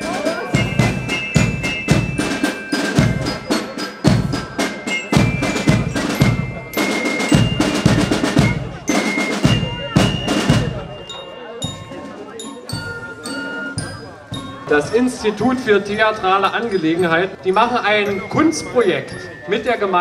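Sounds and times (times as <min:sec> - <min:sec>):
snare drum rolls: 0:00.0 - 0:10.8
fifes playing held notes: 0:00.0 - 0:20.0
glockenspiel: 0:00.0 - 0:20.0.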